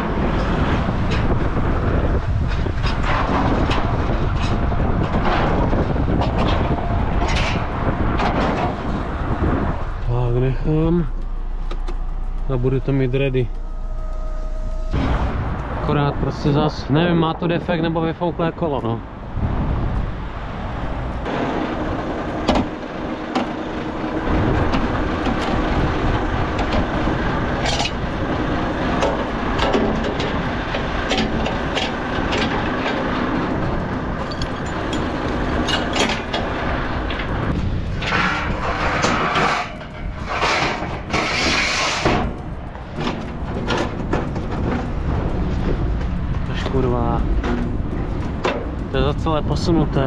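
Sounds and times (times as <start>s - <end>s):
truck engine running: 0.0s - 50.0s
metal clicks and knocks: 2.4s - 10.1s, 11.1s - 12.5s, 27.6s - 49.2s.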